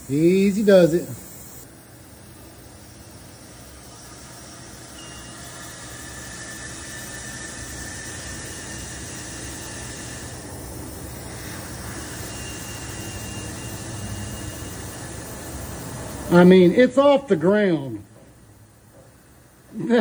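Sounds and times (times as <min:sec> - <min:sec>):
compressed air hissing: 0:00.0 - 0:01.7, 0:02.8 - 0:16.7.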